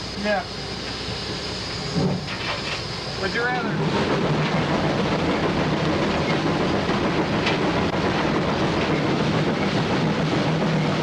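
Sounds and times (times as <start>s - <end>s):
locomotive machinery noise: 0.0s - 11.0s
wheels clattering on rails: 3.5s - 11.0s.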